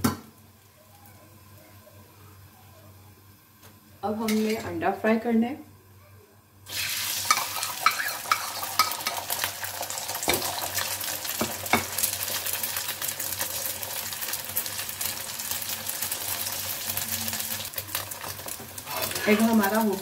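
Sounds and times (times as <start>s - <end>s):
egg sizzling in hot oil: 6.6s - 20.0s.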